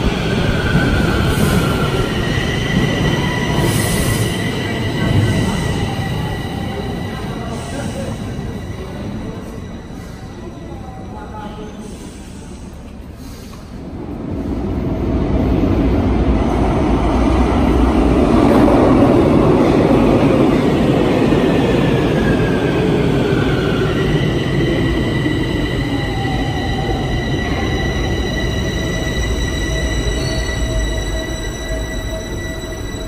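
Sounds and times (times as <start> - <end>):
metro train rumble: 0.0 - 33.0
train brakes squealing: 1.2 - 13.8, 22.4 - 33.0.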